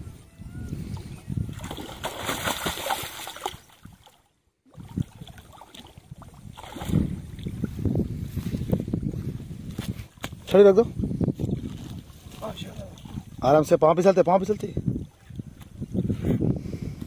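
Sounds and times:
fish splashing in water: 0:01.5 - 0:07.6.

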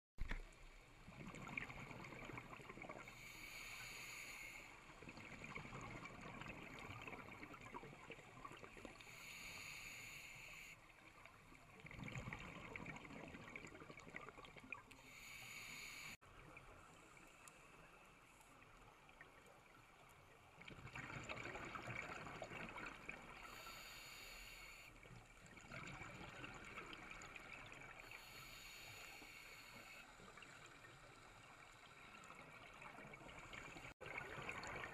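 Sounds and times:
exhaled bubbles gurgling: 0:01.0 - 0:03.4, 0:04.9 - 0:09.2, 0:11.6 - 0:14.9, 0:20.6 - 0:23.7, 0:25.4 - 0:28.4, 0:32.2 - 0:34.9
regulator hiss on inhalation: 0:03.1 - 0:04.8, 0:09.0 - 0:10.8, 0:15.0 - 0:16.2, 0:23.4 - 0:24.9, 0:28.0 - 0:30.2.

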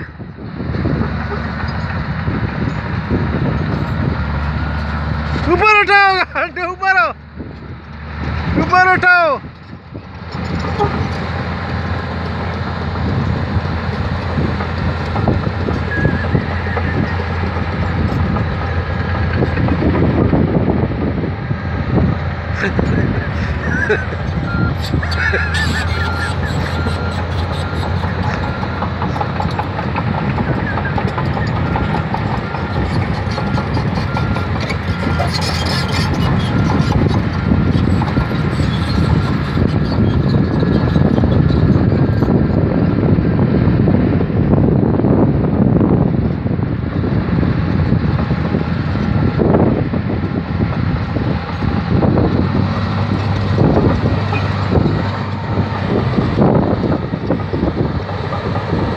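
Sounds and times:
bulldozer diesel engine running: 0:00.0 - 0:58.9
steel tracks clanking: 0:22.5 - 0:43.0.

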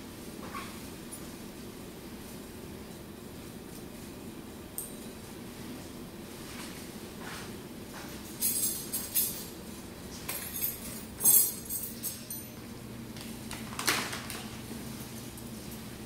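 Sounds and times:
metal instruments clinking: 0:08.4 - 0:09.6, 0:10.3 - 0:12.6.

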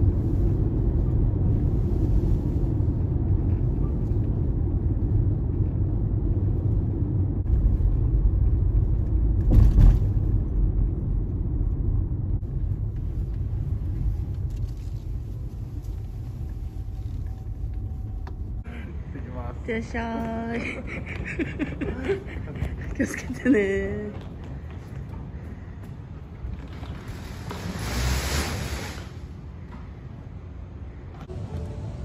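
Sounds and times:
car road and engine noise: 0:00.0 - 0:20.4.

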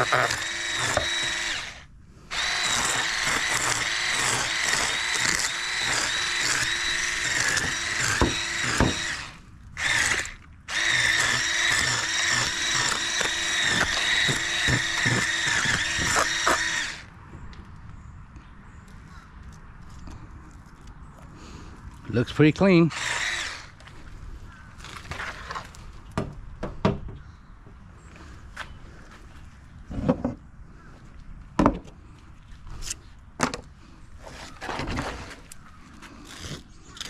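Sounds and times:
electric fish scaler whining: 0:00.0 - 0:17.1, 0:22.9 - 0:23.9.

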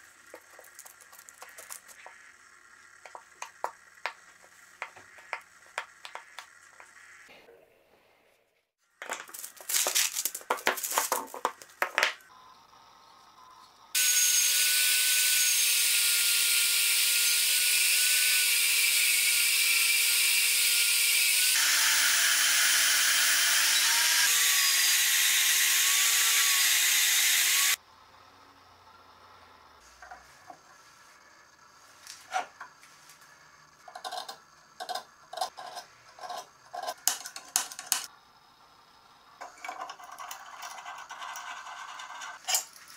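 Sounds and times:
clicking and scraping: 0:00.1 - 0:02.3
bandsaw cutting: 0:14.0 - 0:27.8.

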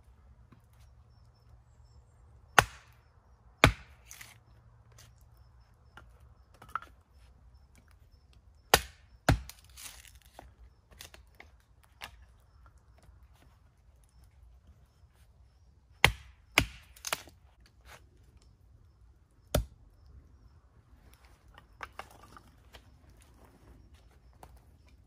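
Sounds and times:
axe chopping wood: 0:02.5 - 0:03.0, 0:03.6 - 0:04.4, 0:08.7 - 0:11.4, 0:16.0 - 0:17.4, 0:19.5 - 0:19.8
wood splitting crackle: 0:03.6 - 0:05.1, 0:08.7 - 0:12.3, 0:16.0 - 0:17.8.

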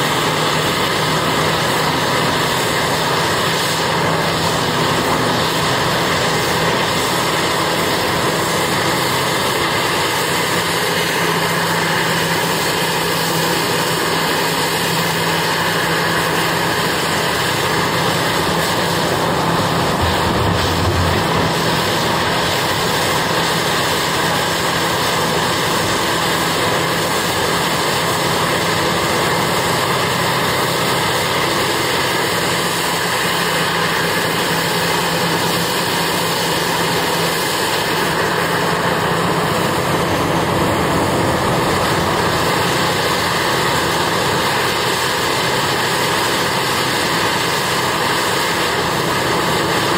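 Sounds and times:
heavy diesel engines running: 0:00.0 - 0:49.9
low rumble: 0:19.4 - 0:23.3.

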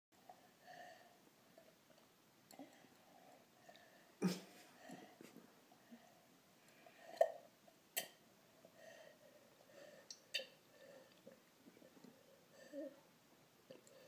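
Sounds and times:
soft breathing: 0:00.2 - 0:01.7, 0:02.6 - 0:07.3, 0:08.6 - 0:13.1.

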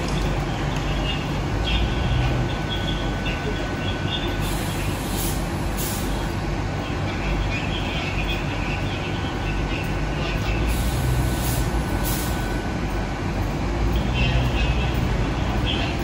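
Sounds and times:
train rumble: 0:00.0 - 0:16.0
air hisses: 0:04.4 - 0:06.2, 0:10.7 - 0:12.4.

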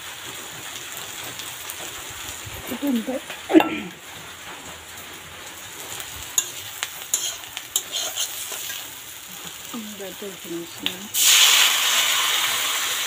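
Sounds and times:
food sizzling in a pan: 0:00.0 - 0:13.0
spatula scraping and tapping pan: 0:05.9 - 0:09.6.

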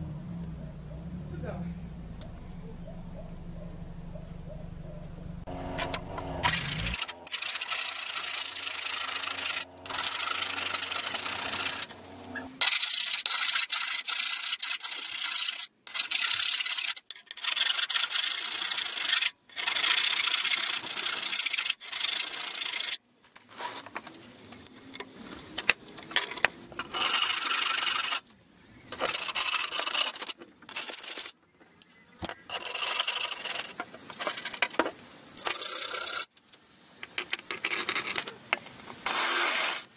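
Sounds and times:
abrasive rasping on steel bar: 0:05.5 - 0:22.9.

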